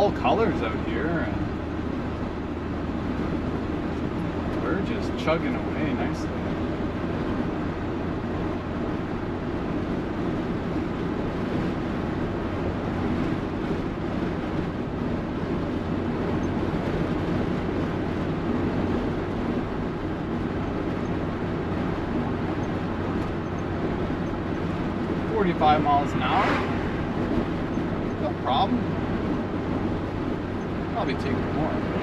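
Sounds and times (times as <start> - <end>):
road and tyre noise: 0.0 - 32.0.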